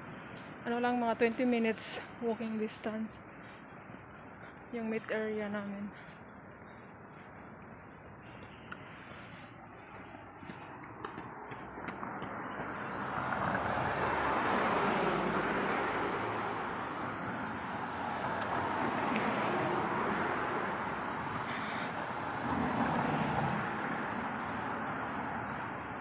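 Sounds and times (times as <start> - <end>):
cars passing: 0.0 - 26.0.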